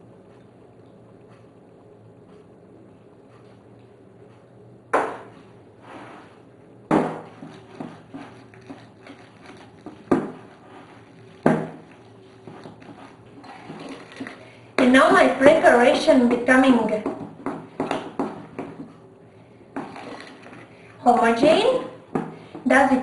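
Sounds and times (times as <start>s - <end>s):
spatula stirring batter in glass bowl: 7.2s - 19.0s, 19.8s - 20.7s.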